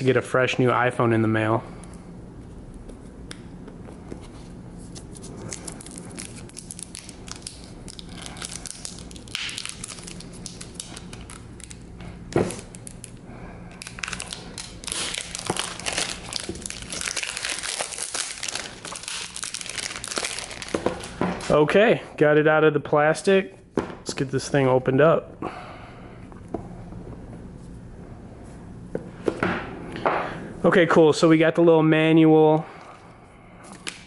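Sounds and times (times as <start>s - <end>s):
plastic wrap crinkling: 4.8s - 13.2s, 13.8s - 21.6s.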